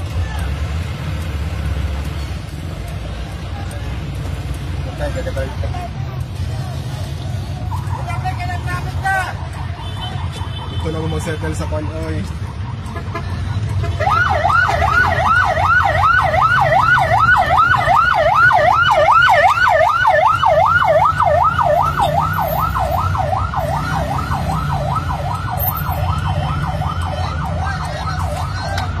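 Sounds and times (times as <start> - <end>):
siren on fast yelp: 7.7 - 13.2, 14.0 - 29.0.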